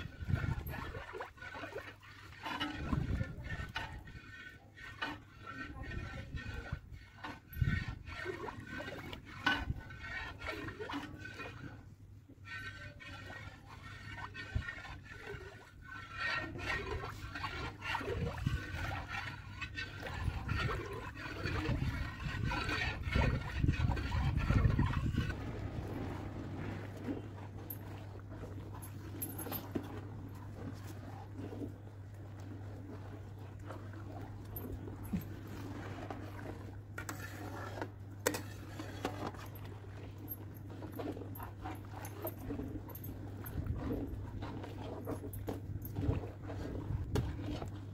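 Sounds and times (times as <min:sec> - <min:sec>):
milk sloshing: 0:00.0 - 0:47.9
metal ladle scraping pan: 0:00.3 - 0:25.4, 0:35.4 - 0:40.2
low rumble: 0:23.4 - 0:28.8.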